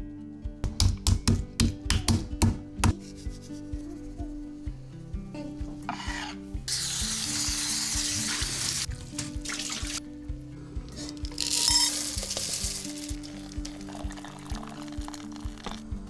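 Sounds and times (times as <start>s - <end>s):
background music: 0.0s - 16.0s
tap running water: 6.8s - 10.0s.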